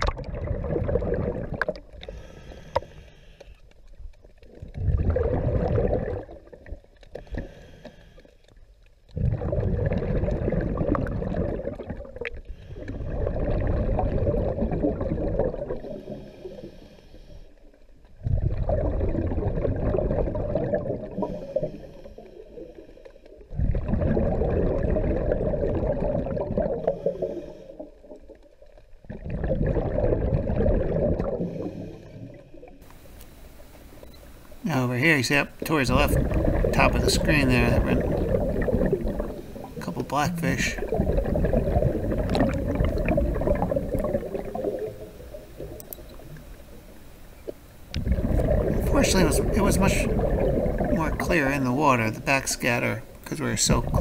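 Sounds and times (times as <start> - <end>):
bubbling exhalations underwater: 0.0 - 2.2, 4.5 - 6.9, 9.1 - 16.2, 18.2 - 21.7, 23.5 - 28.2, 29.0 - 32.8, 35.6 - 46.6, 47.9 - 52.2.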